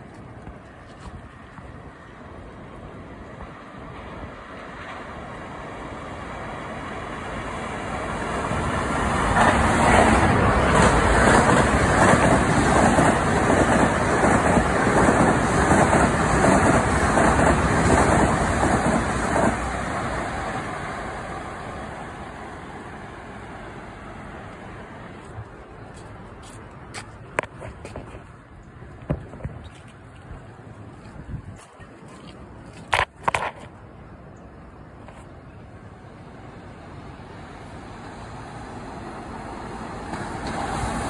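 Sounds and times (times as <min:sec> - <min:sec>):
passenger train passing: 0:00.0 - 0:31.6, 0:32.4 - 0:41.0
wheel-on-rail rumble: 0:00.0 - 0:41.0.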